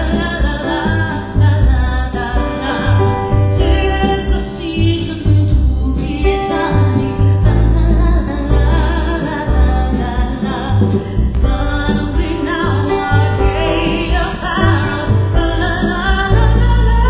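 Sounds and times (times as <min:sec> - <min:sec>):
heavy pulsing bass: 0:07.0 - 0:17.0.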